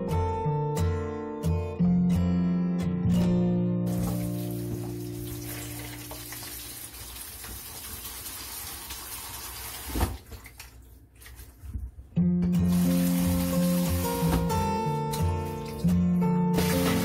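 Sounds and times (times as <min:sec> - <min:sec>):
music: 0:00.0 - 0:06.8, 0:11.7 - 0:17.0
tap water splashing: 0:03.9 - 0:11.9, 0:12.6 - 0:16.0, 0:16.6 - 0:17.0.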